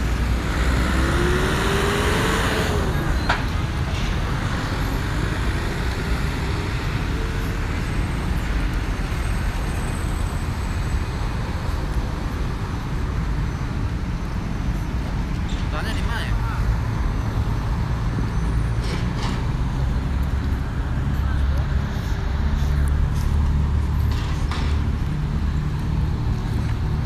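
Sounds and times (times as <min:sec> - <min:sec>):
traffic rumble: 0:00.0 - 0:27.0
engine note rising and falling: 0:00.3 - 0:03.2.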